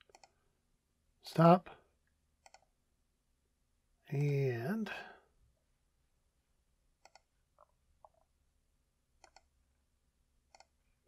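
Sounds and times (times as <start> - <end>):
faint computer mouse clicks: 0.0 - 0.4, 2.4 - 2.7, 7.0 - 8.2, 9.2 - 9.5, 10.5 - 10.7.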